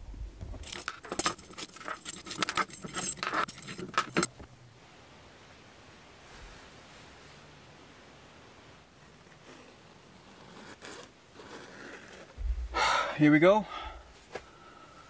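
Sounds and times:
metal hardware clinking: 0.6s - 4.3s.

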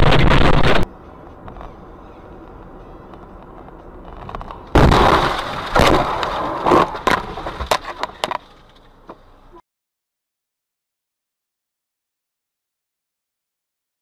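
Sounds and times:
car crash impact: 4.4s - 8.6s.

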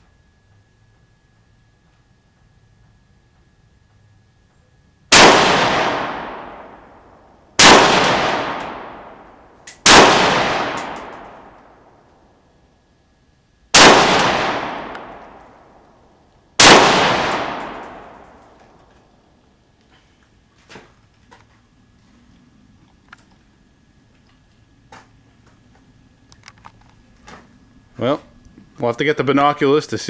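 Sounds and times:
rifle shots echoing: 5.1s - 12.0s, 13.8s - 15.8s, 16.6s - 18.8s.

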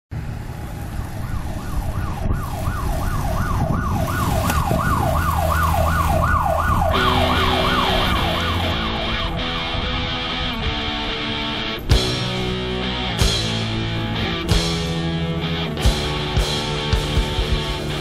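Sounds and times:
siren yelping: 0.9s - 11.7s
guitar music: 6.8s - 18.0s.

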